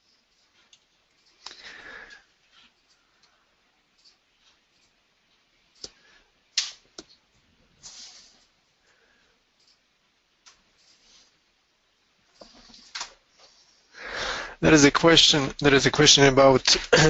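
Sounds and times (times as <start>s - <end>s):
short breath into microphone: 14.0s - 14.6s.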